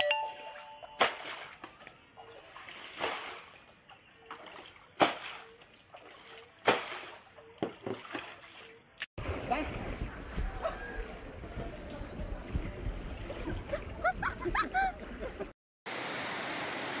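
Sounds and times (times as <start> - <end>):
water splashing: 0.8 - 15.4
plastic shovel scooping water: 4.3 - 10.0.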